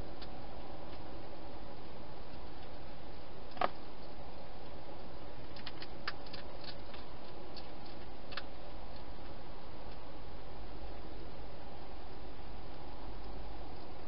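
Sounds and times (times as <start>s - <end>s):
steady hiss: 0.0s - 14.0s
hedgehog chewing dry food: 3.5s - 10.1s.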